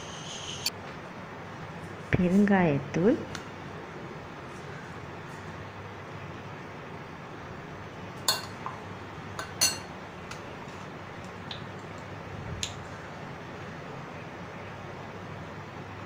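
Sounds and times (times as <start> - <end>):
spoon clinking against glass bowl: 8.3 - 8.7, 9.4 - 9.9.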